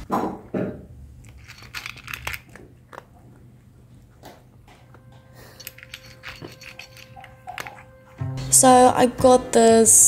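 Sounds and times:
cat crunching dry kibble: 0:01.2 - 0:03.6.

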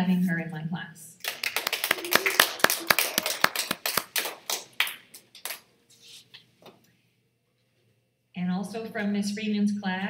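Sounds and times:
audience clapping: 0:01.2 - 0:05.7.

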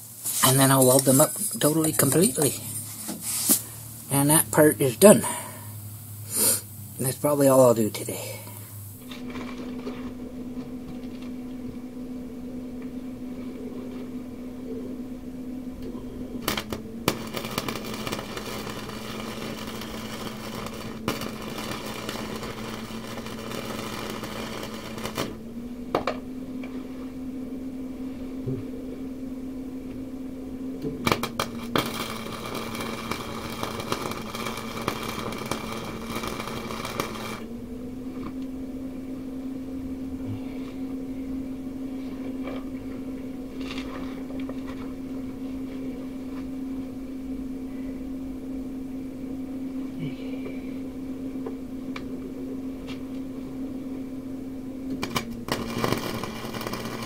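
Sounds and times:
welding arc crackling: 0:00.0 - 0:11.5, 0:15.8 - 0:26.2, 0:30.8 - 0:37.5, 0:54.8 - 0:57.0
electrical hum: 0:00.0 - 0:57.0.

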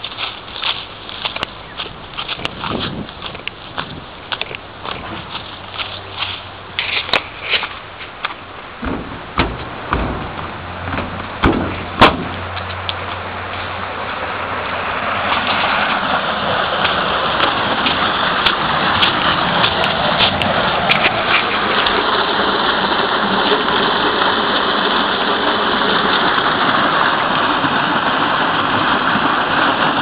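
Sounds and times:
footsteps on gravel and leaves: 0:00.0 - 0:23.6
flowing water rushing: 0:03.6 - 0:30.0
sharp knocks: 0:08.3 - 0:12.9.

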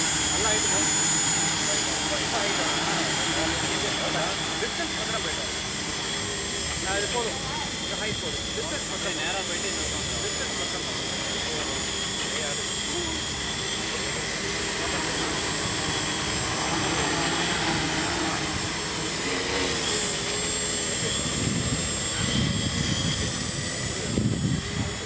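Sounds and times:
drone rotors whining: 0:00.0 - 0:25.0.

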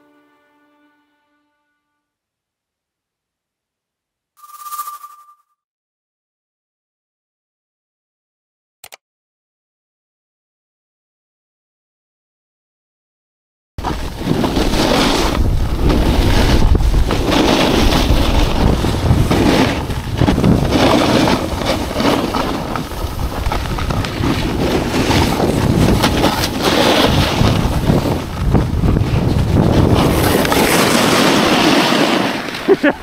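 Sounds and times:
ski edges scraping on snow: 0:13.8 - 0:33.0
wind buffeting microphone: 0:14.0 - 0:31.7.

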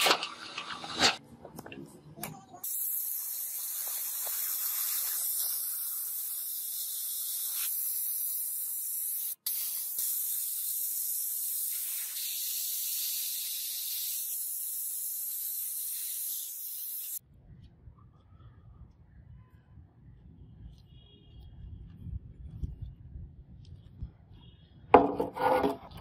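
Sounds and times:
sandblaster hissing: 0:02.6 - 0:17.2.

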